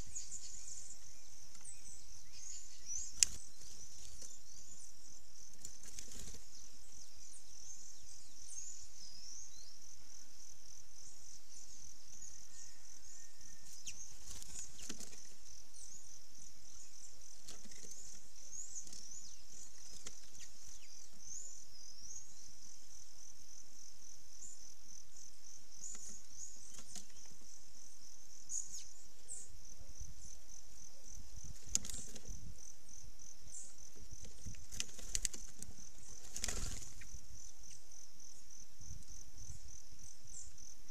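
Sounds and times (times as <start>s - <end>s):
crickets trilling: 0.0s - 40.9s.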